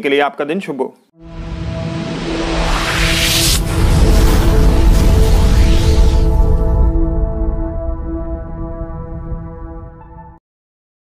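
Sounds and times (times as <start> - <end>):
rising whoosh: 1.2 - 9.9
sustained synth notes: 1.2 - 10.3.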